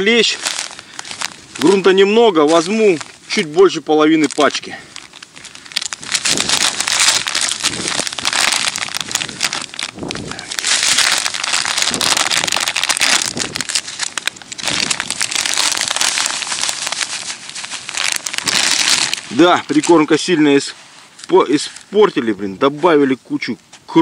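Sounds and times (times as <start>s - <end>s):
plastic packet crinkling: 0.0s - 20.6s
dry mix pouring: 5.0s - 20.1s.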